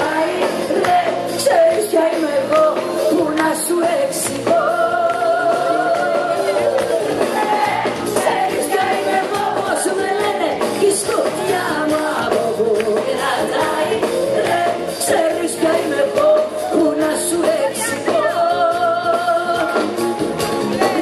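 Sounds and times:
woman singing into microphone: 0:00.0 - 0:06.7, 0:07.7 - 0:19.8
band playing pop-rock: 0:00.0 - 0:21.0.

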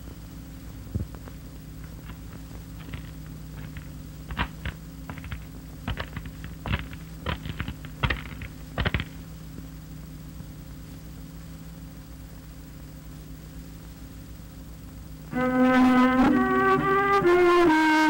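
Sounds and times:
low hum: 0:00.0 - 0:18.0
film clicks and crackles: 0:01.0 - 0:09.2.

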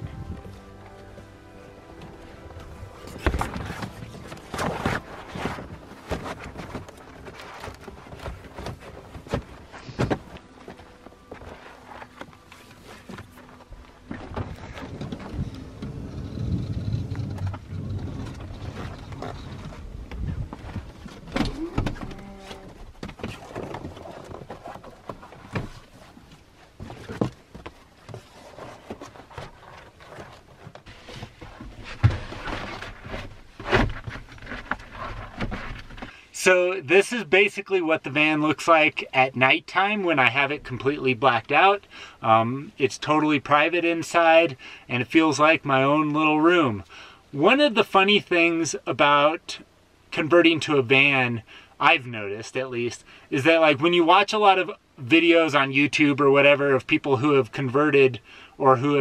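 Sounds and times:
foil rustling and crinkling: 0:03.1 - 0:14.0.

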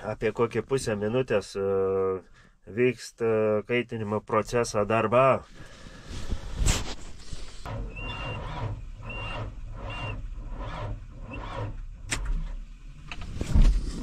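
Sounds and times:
diesel engine cranking with starter: 0:07.6 - 0:13.4.

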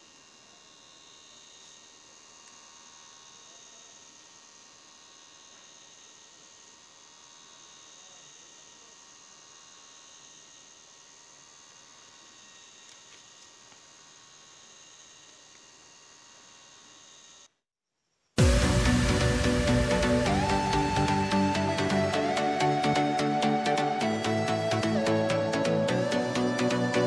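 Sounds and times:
thin high whine: 0:14.0 - 0:27.0.

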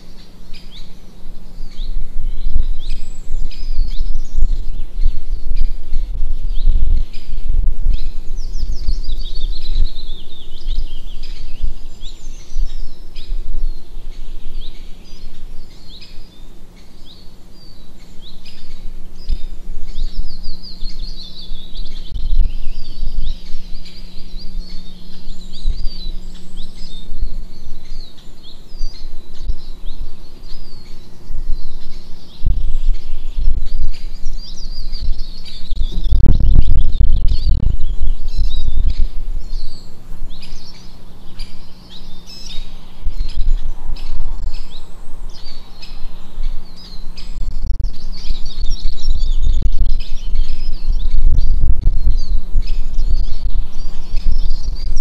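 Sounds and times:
small birds chirping: 0:00.0 - 0:55.0
steady low hum: 0:00.0 - 0:55.0
low rumble: 0:18.8 - 0:40.8.

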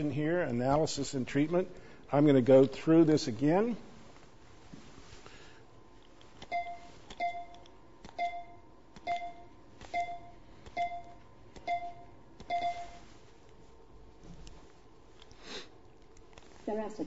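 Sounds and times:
short beep: 0:11.7 - 0:13.0.

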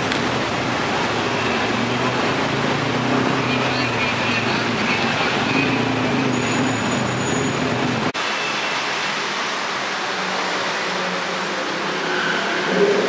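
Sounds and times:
idling car engines hum: 0:00.0 - 0:08.3
street traffic: 0:00.0 - 0:13.0.

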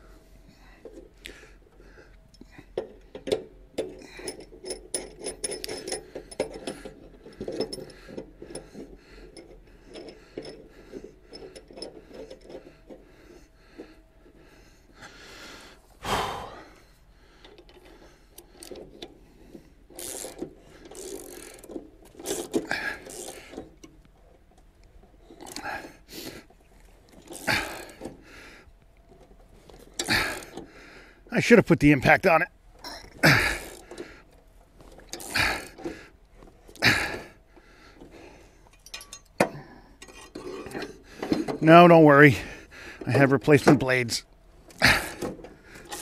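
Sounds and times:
metal tool clinks and rattles: 0:02.3 - 0:13.9, 0:38.0 - 0:41.7, 0:44.7 - 0:46.0.

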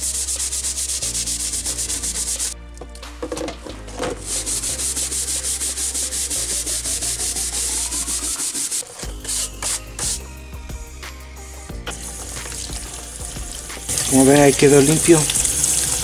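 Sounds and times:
scrubbing leather case: 0:00.1 - 0:10.1.

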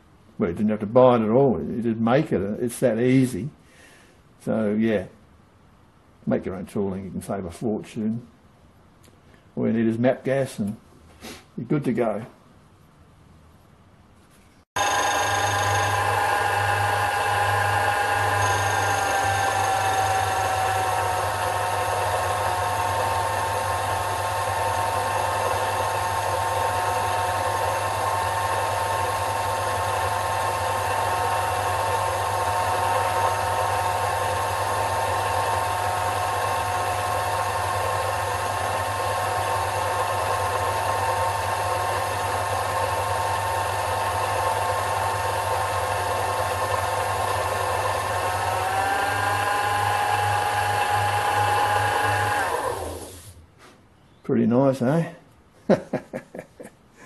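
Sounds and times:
lathe motor whine: 0:14.8 - 0:53.3.

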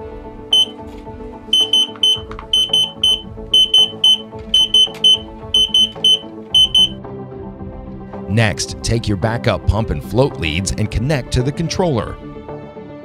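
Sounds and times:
soft background music: 0:00.0 - 0:13.0
short high-pitched alarm beeps: 0:00.5 - 0:00.7, 0:01.6 - 0:07.0.

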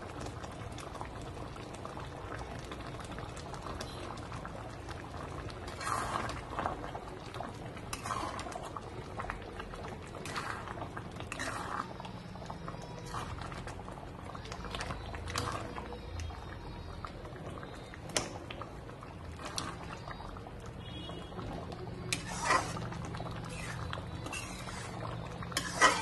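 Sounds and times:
curry bubbling: 0:00.0 - 0:26.0
spatula scraping pan: 0:07.9 - 0:08.6, 0:10.2 - 0:12.1, 0:22.1 - 0:26.0.

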